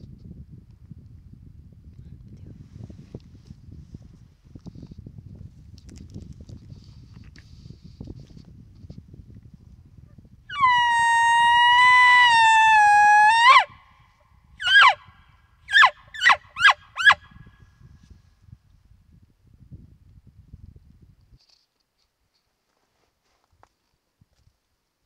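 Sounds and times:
elk bugle call whistle: 10.5 - 13.9, 14.6 - 15.1, 15.7 - 17.3.

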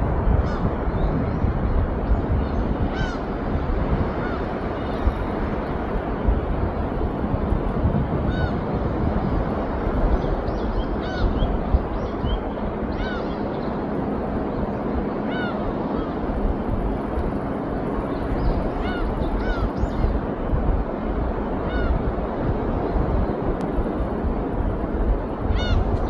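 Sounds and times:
wind: 0.0 - 26.0
bird crying: 2.8 - 3.3, 4.1 - 5.2, 10.5 - 13.8, 15.2 - 16.3, 18.4 - 20.2, 21.6 - 22.1, 25.5 - 26.0.

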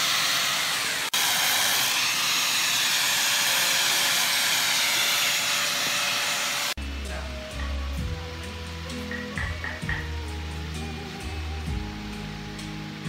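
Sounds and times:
angle grinder sanding wood: 0.0 - 6.8.

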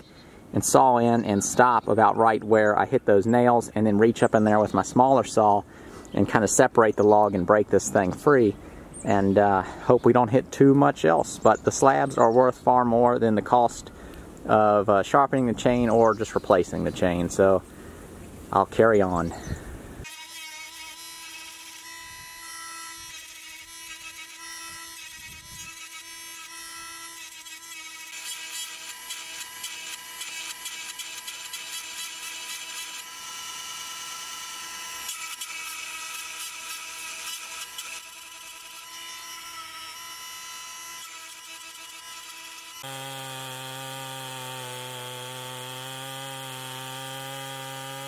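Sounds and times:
chain grinder electric whine: 20.0 - 48.0
gritty grinding of chain teeth: 20.0 - 48.0.

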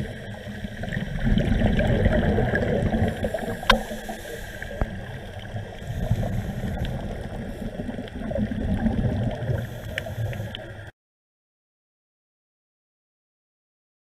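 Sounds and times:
underwater low rumble: 0.0 - 10.9
faint sharp clicks: 9.9 - 10.7.

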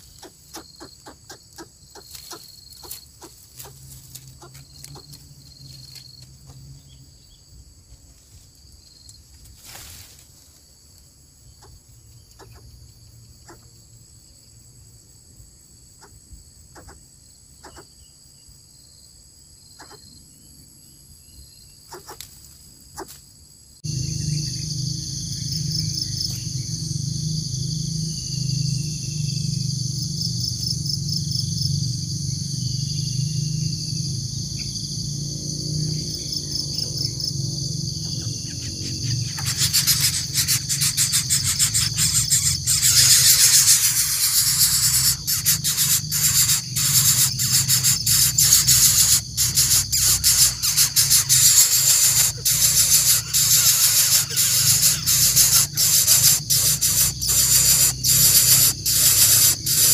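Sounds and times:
insect chorus chirring: 0.0 - 59.9
low hum: 23.8 - 51.1.

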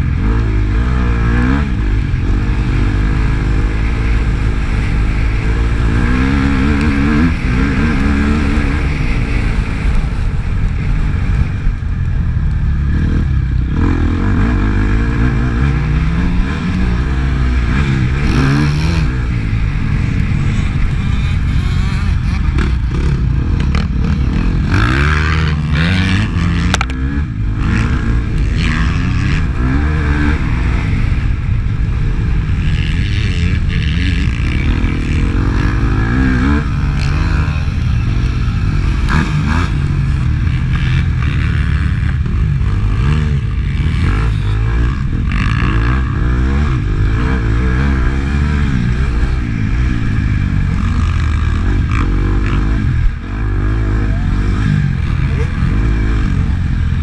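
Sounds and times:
dirt bike engine revving: 0.0 - 57.0
heavy low rumble: 0.0 - 57.0.

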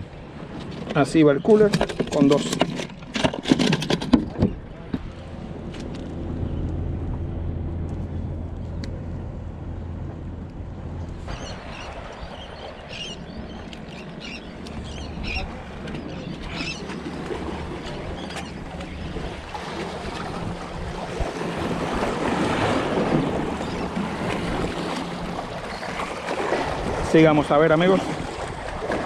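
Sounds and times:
sea waves splashing against rocks: 11.3 - 29.0.

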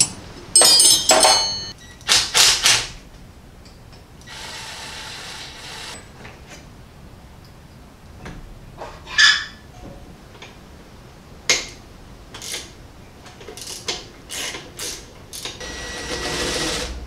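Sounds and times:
wrenches and metal parts clanking: 0.0 - 1.8
cordless power tool whirring: 4.3 - 6.0, 15.6 - 17.0.

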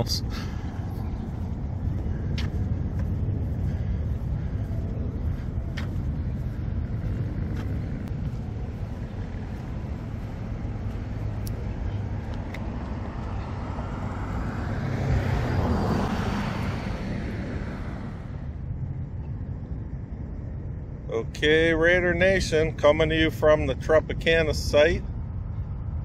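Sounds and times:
vehicle passing close: 0.0 - 20.8
street traffic rumble: 0.0 - 26.0.

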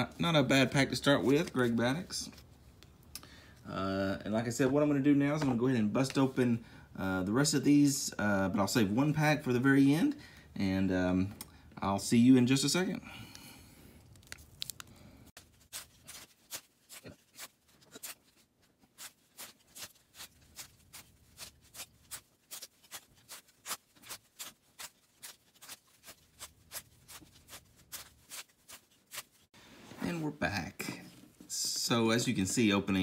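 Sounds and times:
cards being handled: 14.0 - 29.5
wax paper wrappers tearing: 14.1 - 29.5.

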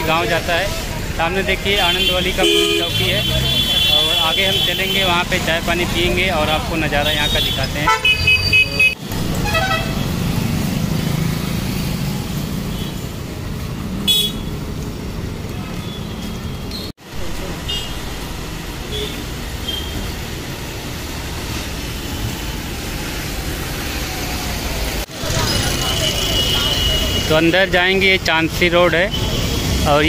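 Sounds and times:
traffic rumble: 0.0 - 30.0
car horn toots: 1.8 - 5.0, 7.0 - 10.1.

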